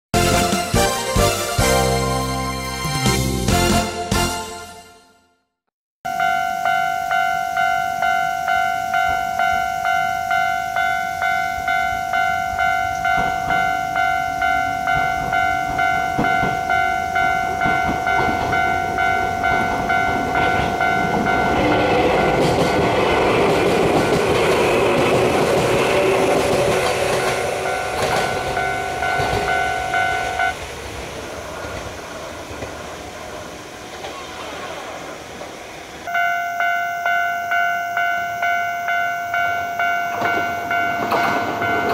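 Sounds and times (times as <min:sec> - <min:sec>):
level crossing warning bell: 0:06.1 - 0:30.6, 0:36.1 - 0:41.9
train wheels clicking over rail joints: 0:11.5 - 0:34.3, 0:39.4 - 0:41.9.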